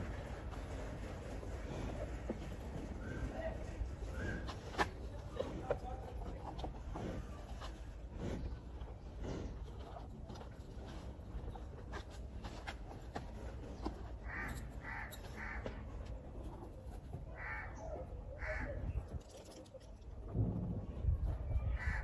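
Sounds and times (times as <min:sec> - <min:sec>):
crow cawing: 0:14.2 - 0:15.7, 0:17.4 - 0:17.8, 0:18.4 - 0:18.7, 0:21.8 - 0:22.0.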